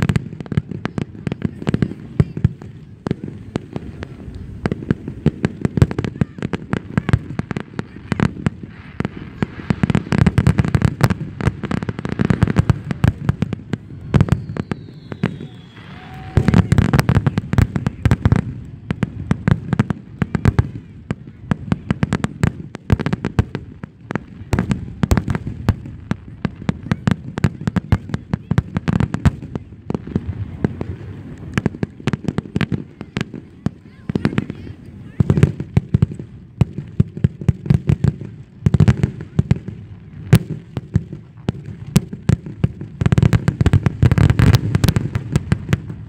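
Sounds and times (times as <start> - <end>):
fireworks booming and crackling: 0.0 - 46.0
high falling whistle: 13.9 - 16.6.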